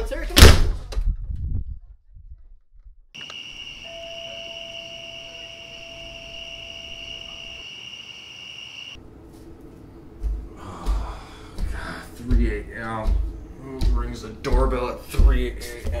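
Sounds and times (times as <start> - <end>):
crickets chirring: 3.2 - 9.0.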